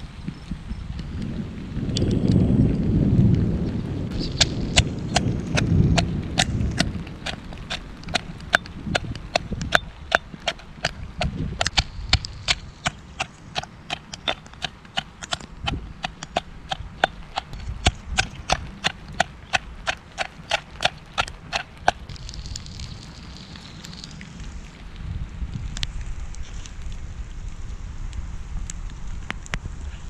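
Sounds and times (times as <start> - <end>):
pestle pounding in stone mortar: 4.2 - 22.1.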